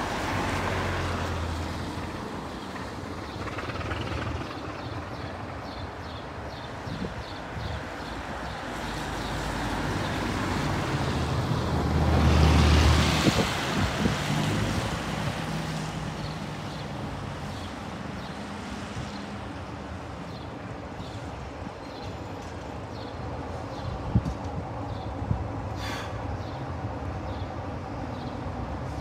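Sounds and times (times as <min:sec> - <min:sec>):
diesel locomotive engine running: 0:01.9 - 0:07.2.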